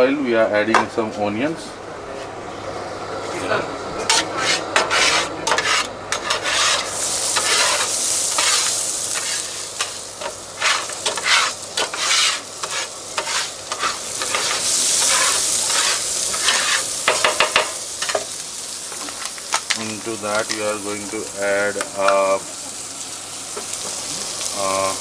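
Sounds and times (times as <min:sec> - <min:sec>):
metal spatula scraping griddle: 0:04.0 - 0:18.3
onions sizzling in oil: 0:04.1 - 0:25.0.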